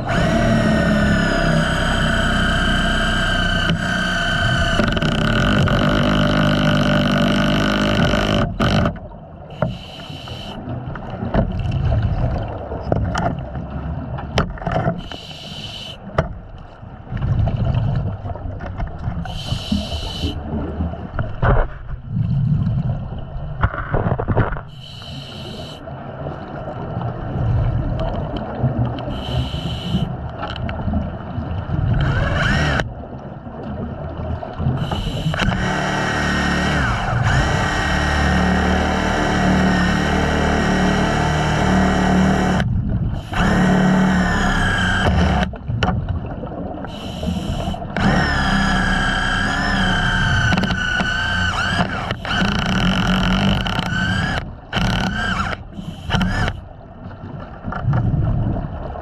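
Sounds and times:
steady whine: 0.0s - 8.9s, 34.8s - 45.6s, 46.8s - 56.7s.

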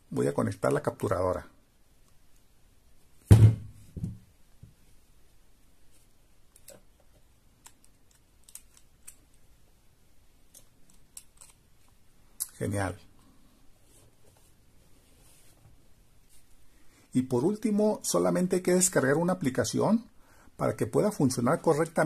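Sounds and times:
dull thump on table: 3.3s - 4.2s.

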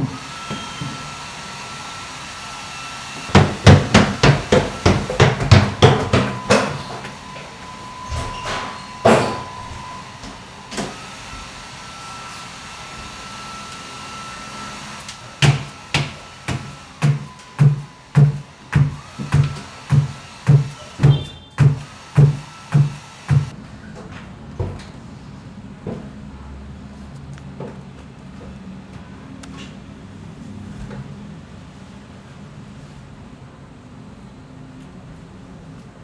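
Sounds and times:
heavy footsteps on stairs: 3.4s - 6.8s.

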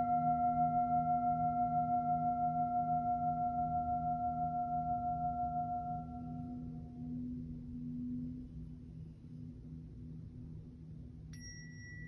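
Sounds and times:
singing bowl ringing: 0.0s - 7.1s, 11.3s - 12.0s
low pulsing tone: 0.0s - 9.3s.

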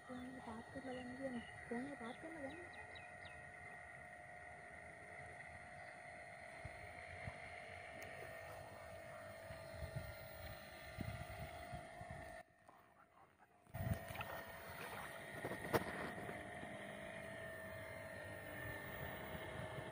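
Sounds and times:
model airboat motor whine: 0.0s - 12.4s, 13.7s - 19.9s
wind on microphone: 8.2s - 12.4s, 13.8s - 17.1s, 18.4s - 19.9s.

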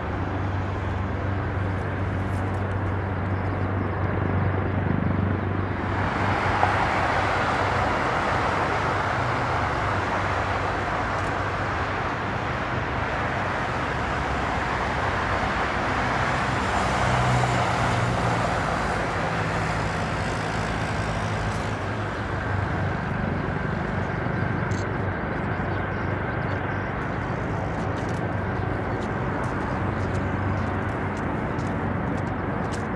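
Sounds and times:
distant jet engines running: 0.0s - 32.9s.

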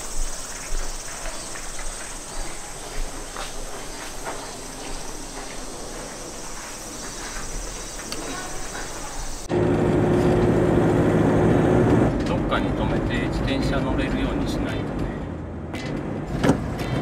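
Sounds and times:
insects shrilling: 0.0s - 9.5s.

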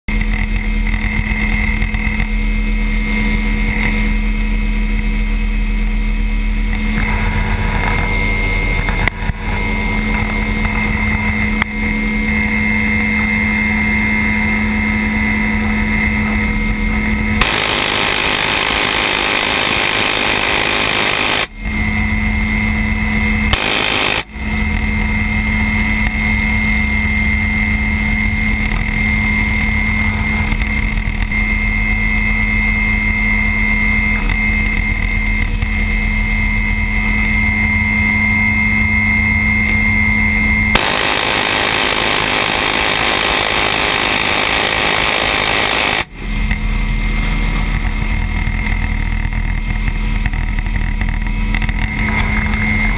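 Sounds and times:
helicopter rotor and engine: 0.1s - 52.9s.

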